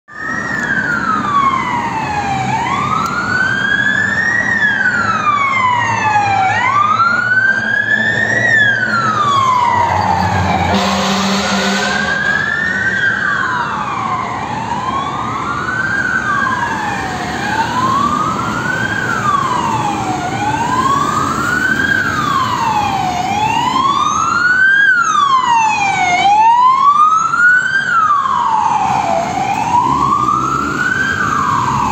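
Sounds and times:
fainter sweeping siren: 0.1 - 31.9
loud wailing siren: 0.1 - 31.9.

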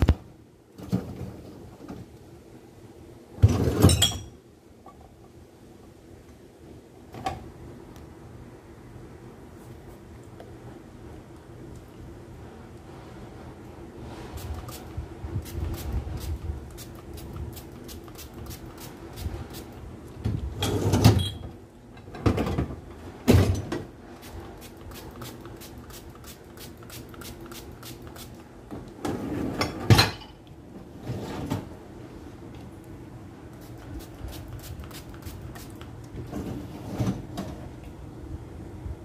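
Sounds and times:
spray bottle spritzing: 24.2 - 28.4, 33.6 - 35.8.

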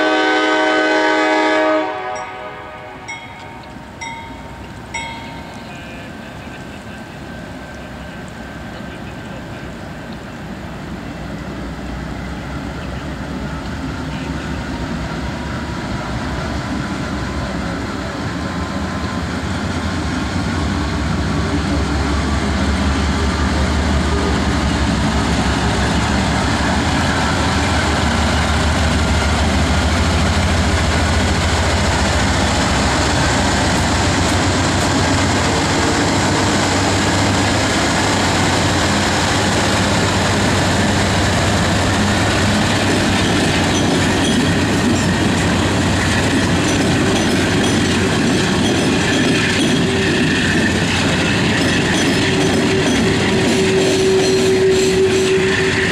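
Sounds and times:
train horn blast: 0.0 - 3.8, 52.4 - 55.9
locomotive engine rumble: 0.0 - 55.9.

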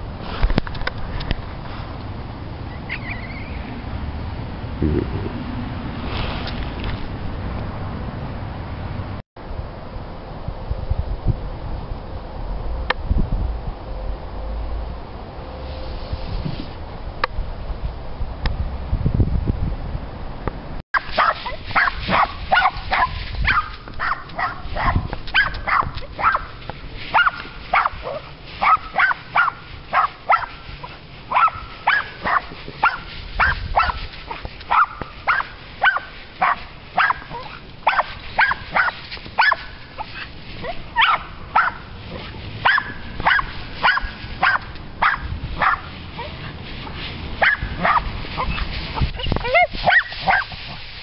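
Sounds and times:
dog barking: 21.0 - 26.5, 27.1 - 30.6, 31.3 - 41.9, 42.6 - 46.4, 47.4 - 48.6, 49.5 - 50.6.

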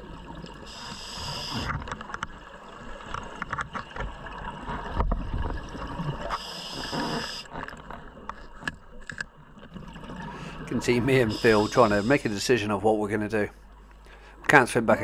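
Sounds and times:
exhaled bubbles gurgling underwater: 0.0 - 8.2, 9.5 - 12.3
regulator inhalation hiss: 0.7 - 1.8, 6.3 - 7.5, 11.2 - 12.5.

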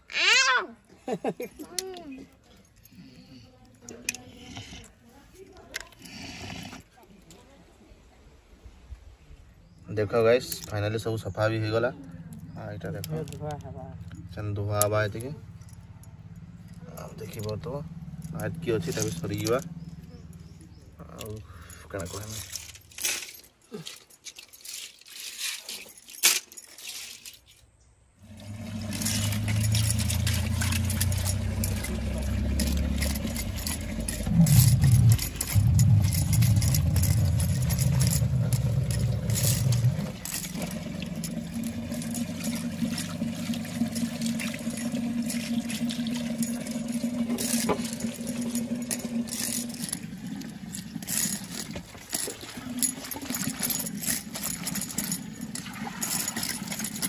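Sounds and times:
snail shells scraping on concrete: 4.0 - 7.0.

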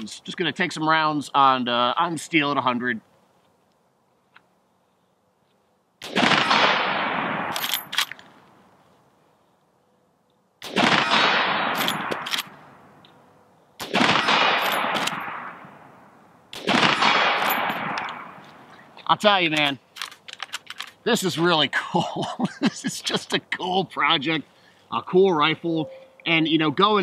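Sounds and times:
rifle shots echoing: 6.0 - 8.0, 10.6 - 12.9, 13.8 - 18.6
rifle lever metallic clicks: 7.5 - 8.3, 11.8 - 13.2, 19.5 - 21.0.

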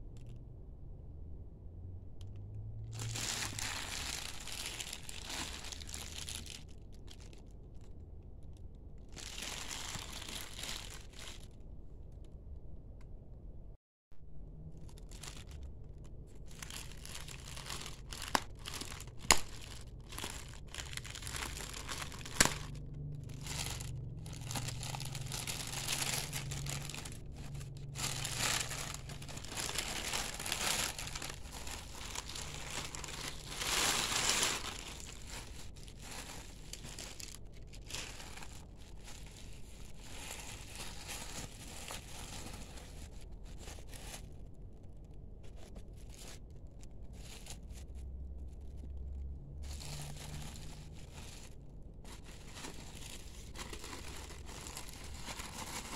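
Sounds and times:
plastic wrapping crinkling: 2.9 - 7.9, 8.9 - 11.7, 14.7 - 55.9.

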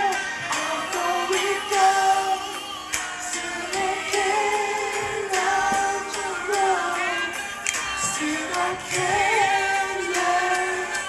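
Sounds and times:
men singing along: 0.0 - 11.0
song with vocals and light beat: 0.0 - 11.0.

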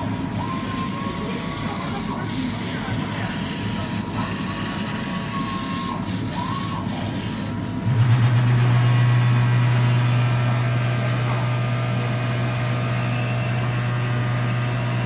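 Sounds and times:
laser cutter machine noise: 0.0 - 15.0
motor whines: 0.0 - 15.0
loud low hum: 7.8 - 15.0.

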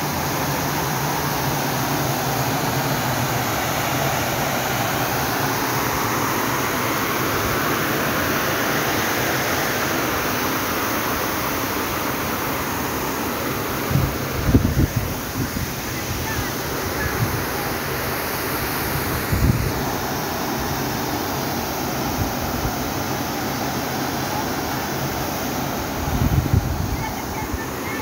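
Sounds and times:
steady rushing noise: 0.0 - 28.0
wind on microphone: 13.8 - 17.6, 18.8 - 20.1, 25.8 - 27.9.

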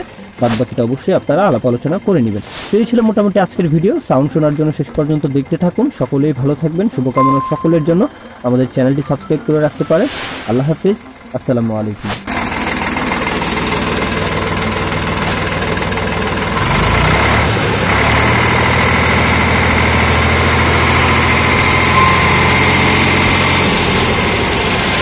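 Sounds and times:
tractor diesel engine idling: 0.0 - 2.4, 11.1 - 25.0.

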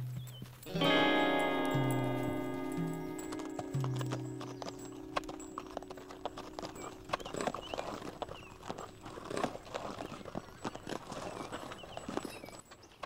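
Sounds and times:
hooves clopping on dirt: 0.0 - 13.0
held music chord: 0.7 - 9.8.

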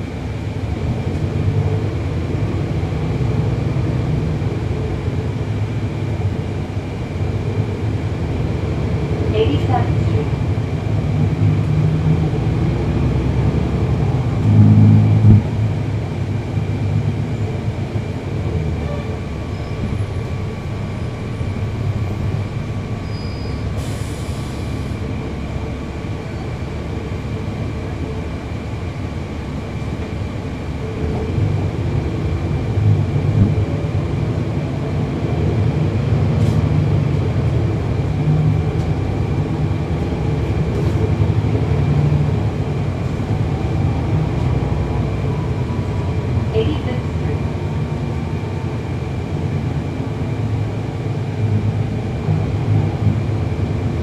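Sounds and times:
bus diesel engine running: 0.0 - 54.0
brief air hiss: 23.8 - 24.9.

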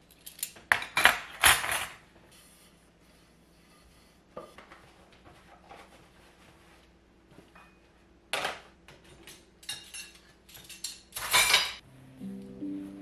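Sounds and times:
dishes clattering and clinking: 0.4 - 2.0, 7.5 - 11.8
light background music: 11.8 - 13.0.

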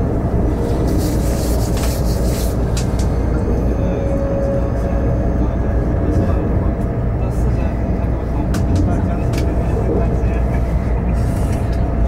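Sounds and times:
train rumble inside carriage: 0.0 - 12.0.

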